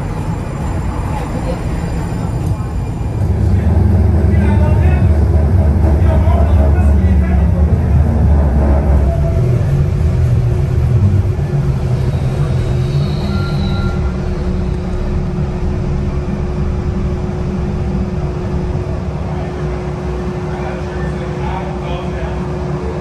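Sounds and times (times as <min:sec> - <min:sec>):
faint whine: 0:00.0 - 0:22.4
vehicle cabin rumble: 0:02.5 - 0:20.5.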